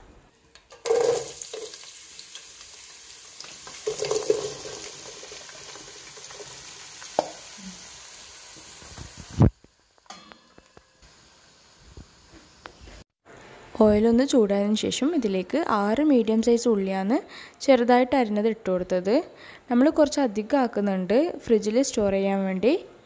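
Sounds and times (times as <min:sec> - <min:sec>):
onions thudding into pot: 0:00.7 - 0:01.8
hot oil sizzling: 0:00.7 - 0:13.0.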